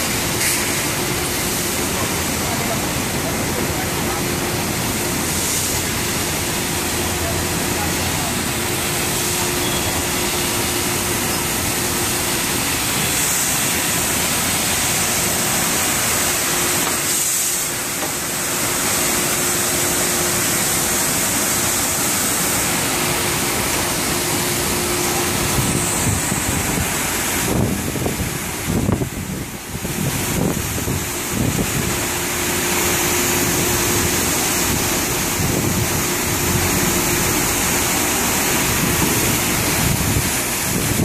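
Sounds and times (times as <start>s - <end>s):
pump humming: 0.0s - 41.0s
water spray jets hissing: 0.0s - 41.0s.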